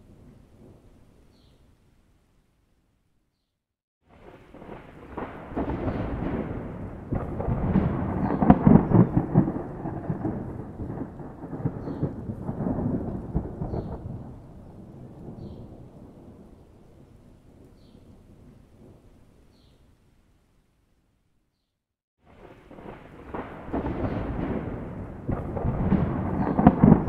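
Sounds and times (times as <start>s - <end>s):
rolling thunder rumble: 4.1s - 19.0s, 22.3s - 27.0s.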